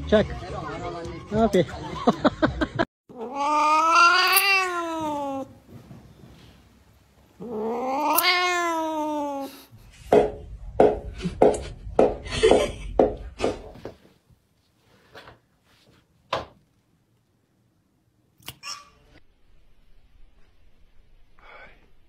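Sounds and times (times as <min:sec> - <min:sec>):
cat yowling: 0:03.1 - 0:05.6, 0:07.4 - 0:09.7.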